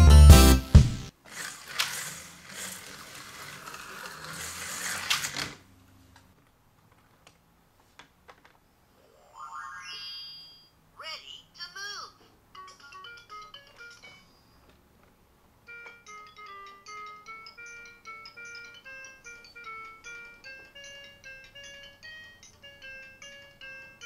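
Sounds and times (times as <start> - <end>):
music jingle: 0.0 - 1.1, 12.5 - 14.6, 15.6 - 24.0
toy slot cars whirring: 1.2 - 5.6.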